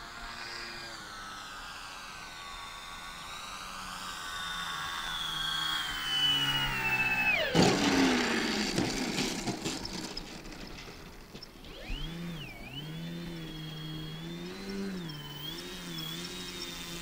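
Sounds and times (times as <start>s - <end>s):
electric motors whining: 0.0s - 17.0s
wheels rumbling over grass: 7.4s - 13.6s
wheels knocking on ground: 7.5s - 11.6s.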